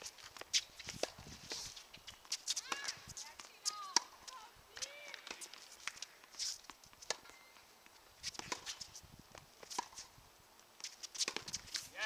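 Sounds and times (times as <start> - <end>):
footsteps on court: 0.0 - 10.1
shoe squeak: 0.5 - 3.9, 6.3 - 7.6.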